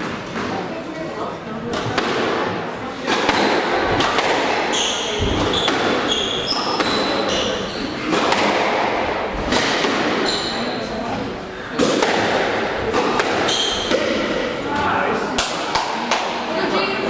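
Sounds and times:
squash ball hits: 1.7 - 10.8, 11.7 - 14.4, 15.4 - 16.5
shoes squeaking on court floor: 4.7 - 8.2, 10.2 - 11.2, 13.4 - 14.7.

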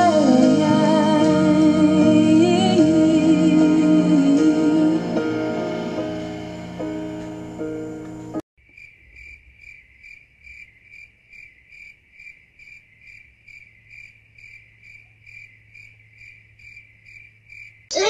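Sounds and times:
cricket chirping: 7.4 - 17.9.

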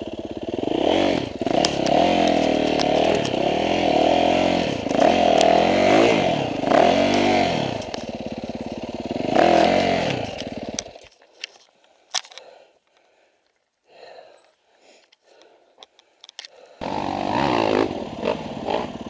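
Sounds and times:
dirt bike engine revving: 0.0 - 11.0, 16.8 - 19.0
faint clicks and rustles: 10.2 - 16.8.

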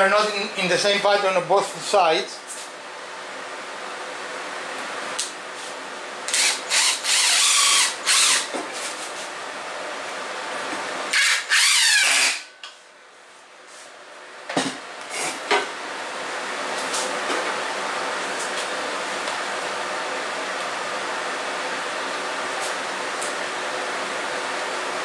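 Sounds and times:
cordless driver running: 6.3 - 8.5.

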